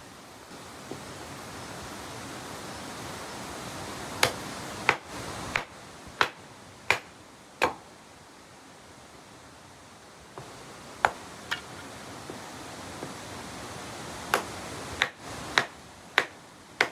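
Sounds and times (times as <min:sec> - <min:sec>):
blade chopping wood: 0:04.2 - 0:07.8, 0:14.3 - 0:16.9.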